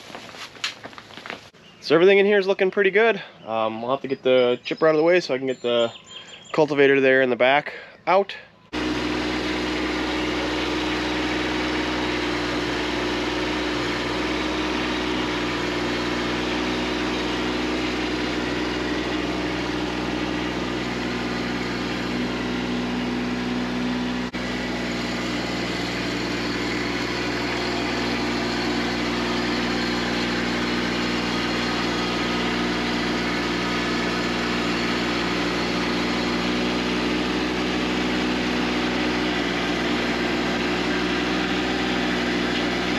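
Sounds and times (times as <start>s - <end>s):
tractor diesel engine running: 8.5s - 42.9s.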